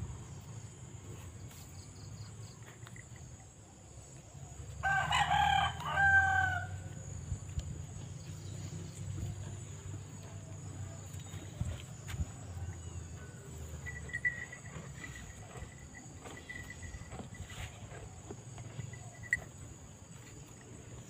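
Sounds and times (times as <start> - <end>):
rooster crowing: 4.8 - 7.0.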